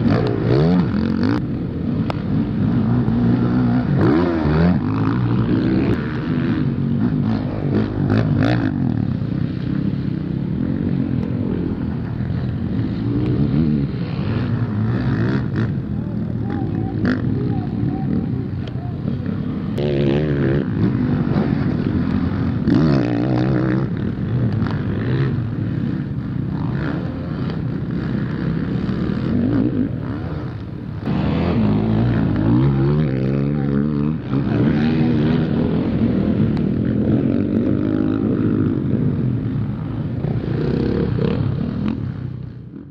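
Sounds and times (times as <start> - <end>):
motocross bike engines revving: 0.0 - 42.9.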